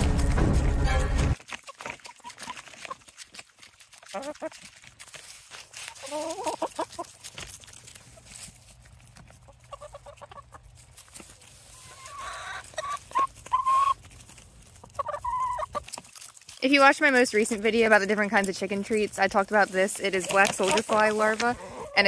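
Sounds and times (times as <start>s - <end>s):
hens clucking and calling: 1.5s - 3.3s, 4.0s - 4.8s, 5.8s - 7.2s, 9.2s - 16.2s, 16.8s - 22.0s.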